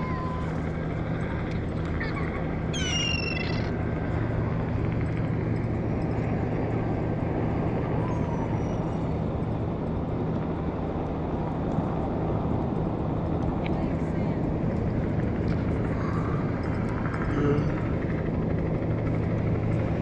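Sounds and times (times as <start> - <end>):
gull crying: 0.0 - 0.6, 1.9 - 3.8, 7.9 - 9.0, 17.3 - 18.0
low drone: 14.2 - 20.0.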